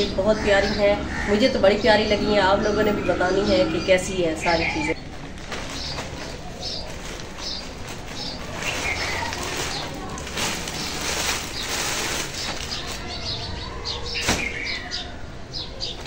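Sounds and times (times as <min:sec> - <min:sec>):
birds chirping: 0:00.0 - 0:16.0
plastic bag rustling: 0:05.0 - 0:14.9.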